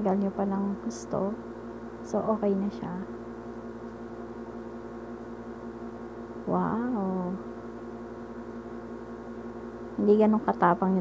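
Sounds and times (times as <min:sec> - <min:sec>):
hum of held tones: 0:00.0 - 0:11.0.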